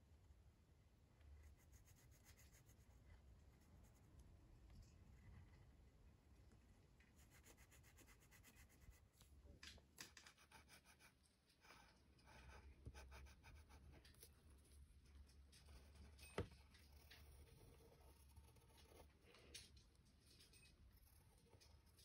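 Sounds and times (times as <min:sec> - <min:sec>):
pencil scratching on paper: 0:01.4 - 0:04.2, 0:07.2 - 0:09.3, 0:10.2 - 0:14.7, 0:15.7 - 0:19.2.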